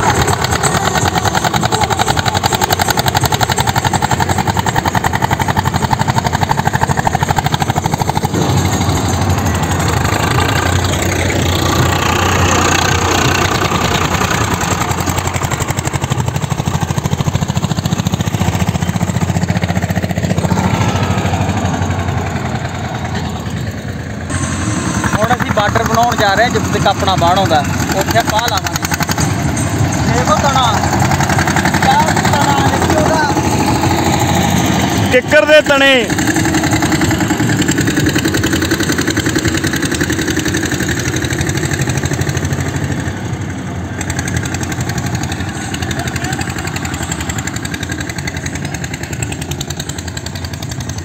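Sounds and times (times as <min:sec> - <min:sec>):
diesel tractor engine under load: 0:00.0 - 0:51.0.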